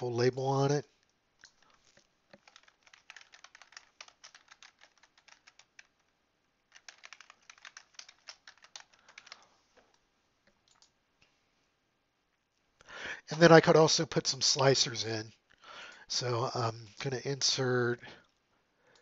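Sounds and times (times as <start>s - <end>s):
faint typing on computer keyboard: 1.0s - 11.3s, 18.1s - 19.0s.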